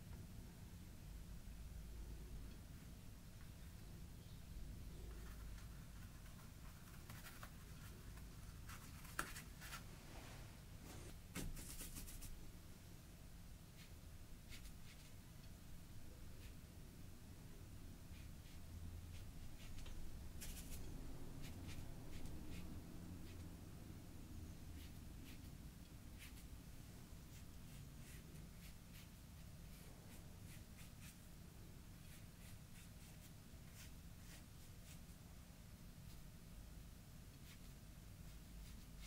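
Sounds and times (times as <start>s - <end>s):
low room hum: 0.0s - 39.0s
paintbrush strokes scratching: 4.9s - 12.4s, 18.1s - 23.5s, 26.1s - 26.5s, 27.2s - 31.2s, 32.0s - 35.2s.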